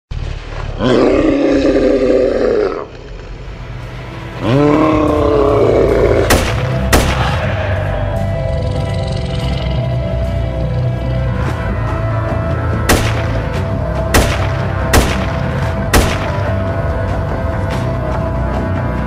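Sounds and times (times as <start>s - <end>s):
low music drone: 0.2s - 19.0s
monster roars: 0.8s - 3.1s, 4.4s - 6.3s
gunshots: 6.3s - 7.5s, 12.9s - 16.7s.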